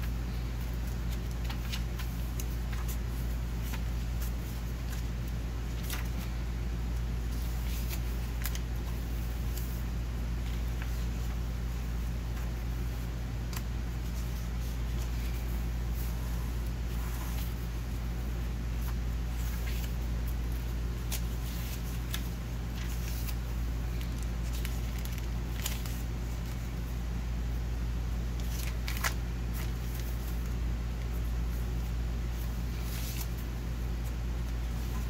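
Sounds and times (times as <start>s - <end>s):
paper pages rustling: 0.0s - 26.9s, 28.3s - 35.0s.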